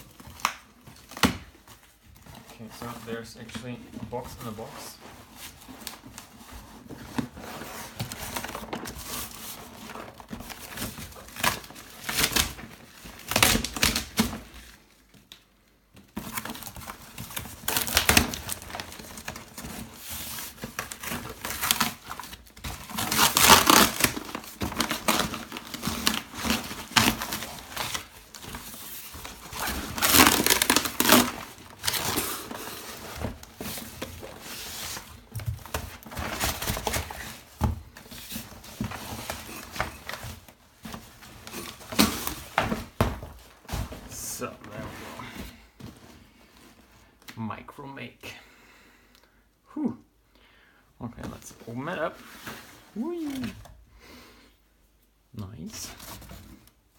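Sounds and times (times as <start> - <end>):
cardboard ripping and crinkling: 2.3 - 14.8, 16.1 - 45.6.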